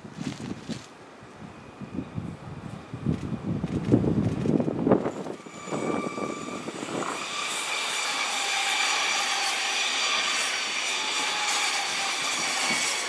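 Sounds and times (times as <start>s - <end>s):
train wheels rolling on rails: 2.7s - 13.0s
train motor whine: 5.1s - 13.0s.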